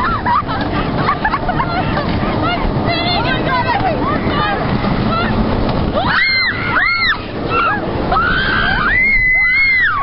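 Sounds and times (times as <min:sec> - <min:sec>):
roller coaster train rumbling: 0:00.0 - 0:10.0
wind on microphone: 0:00.0 - 0:10.0
people screaming: 0:04.0 - 0:10.0.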